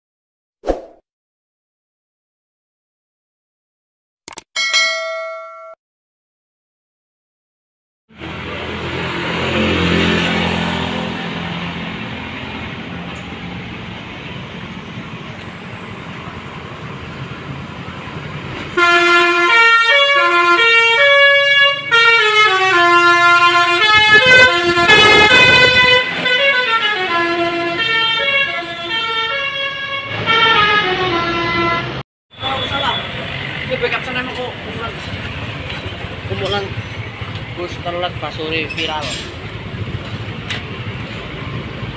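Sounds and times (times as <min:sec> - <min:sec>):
bus engine running: 0:08.2 - 0:19.4, 0:30.1 - 0:41.9
musical horn tune: 0:18.8 - 0:32.0.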